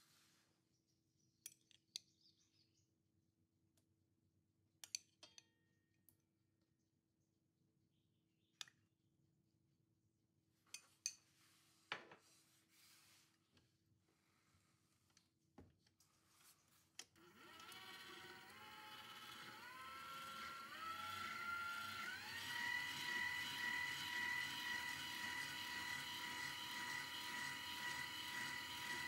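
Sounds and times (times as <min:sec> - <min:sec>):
stand mixer motor whine: 0:17.2 - 0:29.0.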